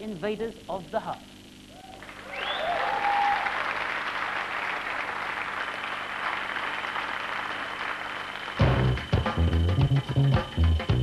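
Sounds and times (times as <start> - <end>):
audience applauding and cheering: 1.7 - 9.2.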